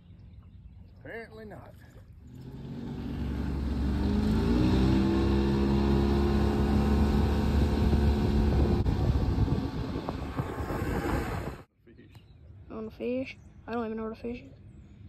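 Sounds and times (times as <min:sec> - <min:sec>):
outboard motor speeding up: 0:01.9 - 0:11.7
rushing noise: 0:06.9 - 0:11.7.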